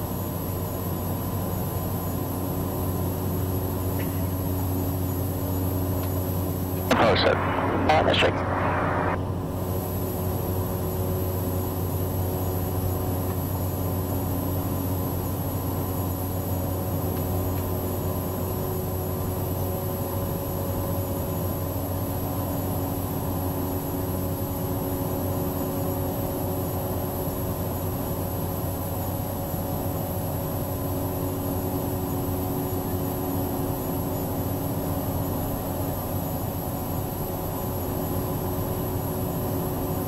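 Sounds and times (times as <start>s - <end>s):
turboprop engine drone: 0.0s - 40.0s
thin high whine: 6.8s - 9.8s.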